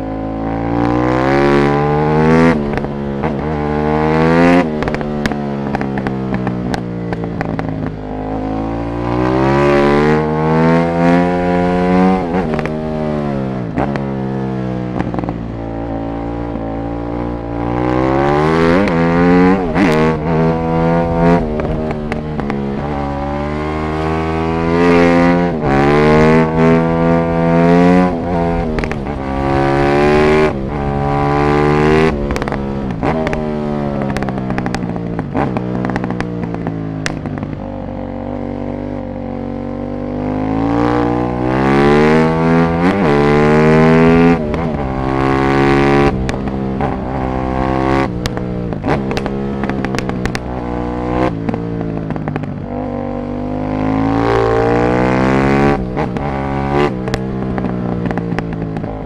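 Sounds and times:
motorcycle accelerating and shifting: 0:00.0 - 0:59.0
exhaust cracks: 0:28.1 - 0:37.8, 0:45.9 - 0:52.8, 0:55.7 - 0:59.0.

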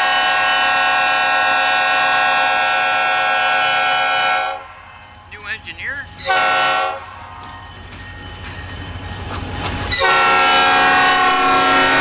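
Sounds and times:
locomotive horn blast: 0:00.0 - 0:04.8, 0:06.2 - 0:07.1, 0:09.9 - 0:12.0.

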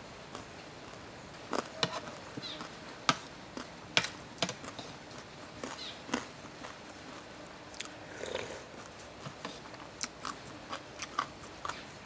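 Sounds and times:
person chewing with mouth smacks: 0:04.4 - 0:11.9.

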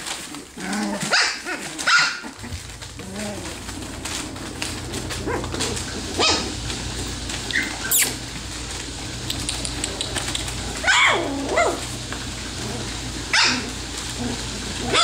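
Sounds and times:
newspaper rustling: 0:00.0 - 0:15.0
puppies yipping and whimpering: 0:04.1 - 0:06.6, 0:07.4 - 0:08.2, 0:09.4 - 0:11.9, 0:13.3 - 0:15.0.

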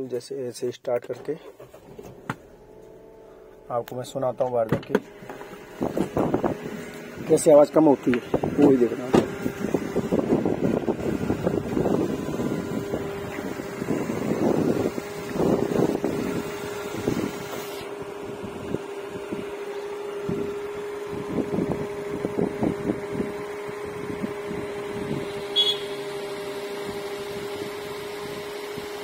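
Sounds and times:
car engine idling: 0:01.3 - 0:29.0.

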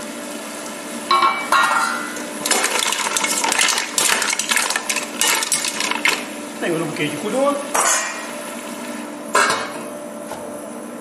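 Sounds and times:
mussel shells clattering in pot: 0:02.4 - 0:06.3.

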